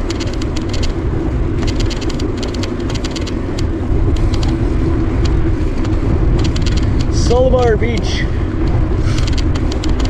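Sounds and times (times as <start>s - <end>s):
bicycle tyre noise: 0.0s - 10.0s
wind rushing over microphone: 0.0s - 10.0s
fast light clicking: 9.2s - 10.0s.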